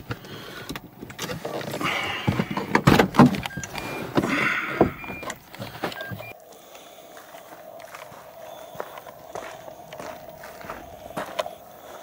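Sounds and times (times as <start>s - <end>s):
rustling and knocks in car cabin: 2.2s - 5.3s.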